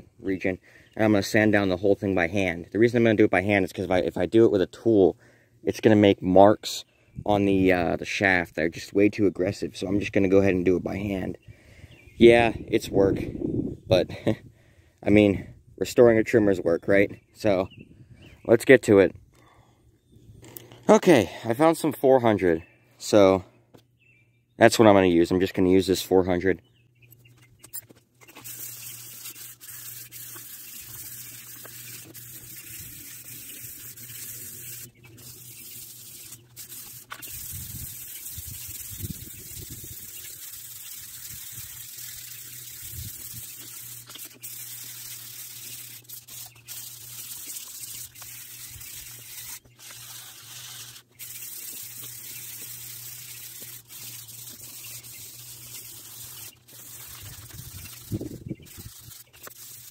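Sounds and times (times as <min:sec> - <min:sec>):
sandpaper rubbing on metal: 0:28.2 - 0:59.9.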